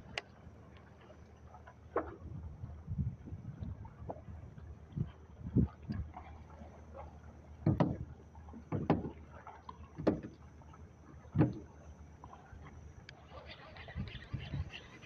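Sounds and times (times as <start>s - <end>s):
dull thumps on a boat: 7.6s - 9.2s, 9.9s - 10.4s, 11.3s - 11.7s.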